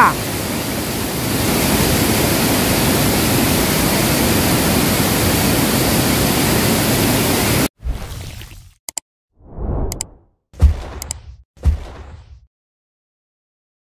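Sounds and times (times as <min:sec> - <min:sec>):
waterfall rushing: 0:00.0 - 0:07.7.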